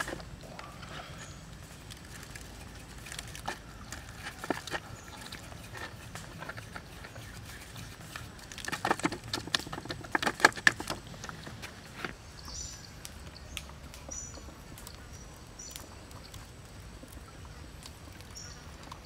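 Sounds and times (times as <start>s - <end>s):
bird chirping: 2.4s - 8.2s, 11.1s - 16.5s, 17.2s - 19.0s.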